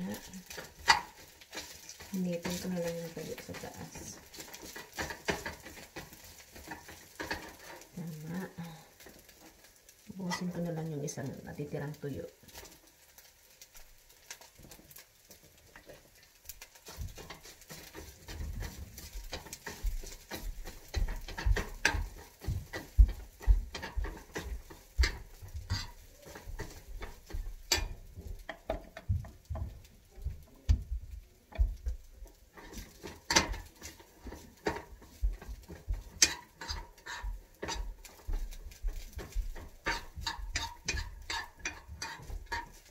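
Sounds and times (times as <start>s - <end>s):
utensils and dishes clattering: 0.0s - 8.0s, 16.9s - 29.1s, 32.5s - 42.9s.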